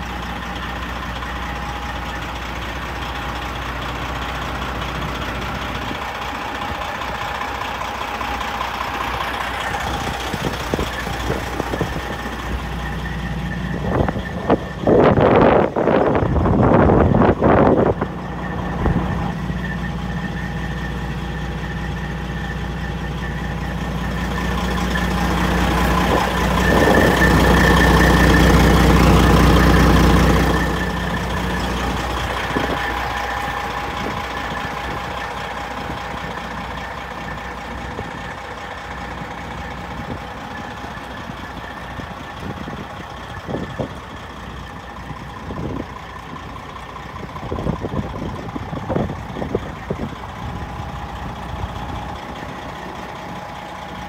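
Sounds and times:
diesel truck engine idling: 0:00.0 - 0:54.0
thin engine whine: 0:09.3 - 0:36.3.

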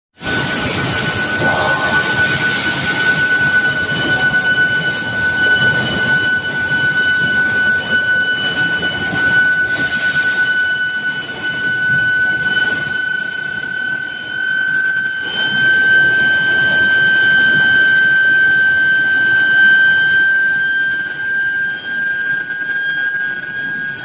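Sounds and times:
conveyor machine rumble: 0:00.2 - 0:10.5
induction coils whining: 0:00.2 - 0:24.0.

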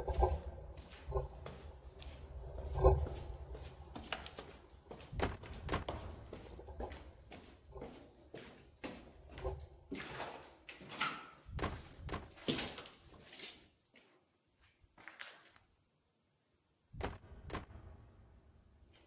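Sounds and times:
loud thumps: 0:17.0 - 0:18.5.

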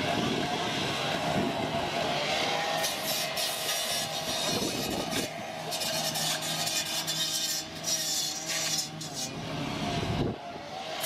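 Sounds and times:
low engine hum: 0:00.0 - 0:03.3, 0:09.0 - 0:11.0
hose spraying water: 0:02.8 - 0:09.3.

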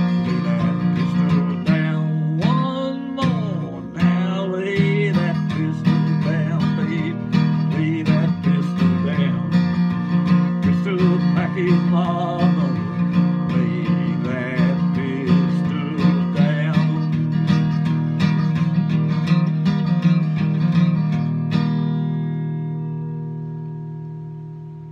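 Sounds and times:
man singing: 0:00.0 - 0:18.6
acoustic guitar strumming: 0:00.0 - 0:24.9.

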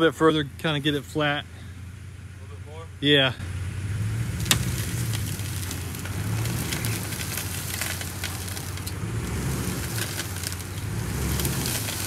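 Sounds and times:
vehicle engine idling: 0:00.0 - 0:12.0
crackling clicks: 0:04.4 - 0:12.0.

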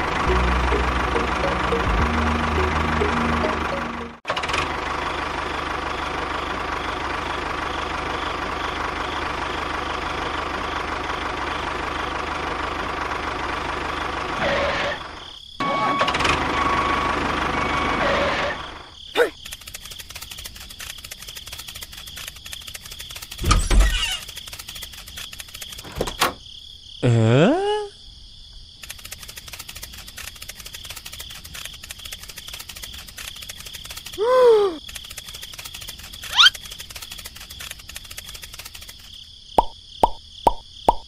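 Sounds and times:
tractor engine running: 0:00.0 - 0:15.2, 0:16.0 - 0:26.4, 0:28.8 - 0:39.3
rock drill rapid clicks: 0:19.4 - 0:26.0, 0:28.8 - 0:34.2, 0:34.8 - 0:39.2.

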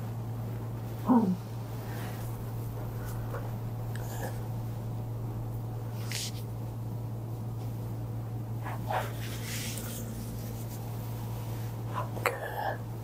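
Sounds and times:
soft massage handling sounds: 0:00.0 - 0:04.8, 0:05.6 - 0:08.0, 0:08.6 - 0:12.3
steady low hum: 0:00.0 - 0:13.0.

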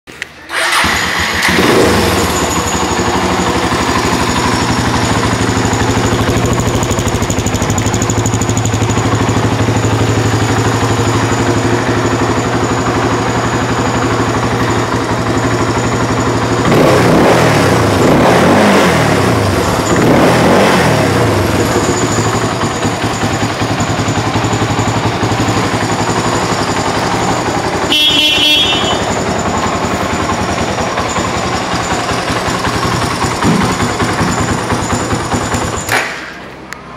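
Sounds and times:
motorcycle engine idling and revving: 0:00.1 - 0:36.9
motorcycle horn: 0:27.5 - 0:29.6.

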